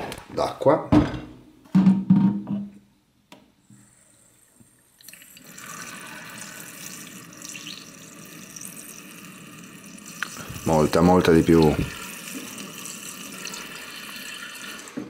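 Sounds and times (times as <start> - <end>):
tap water splashing into kettle: 10.2 - 10.6, 11.5 - 12.6.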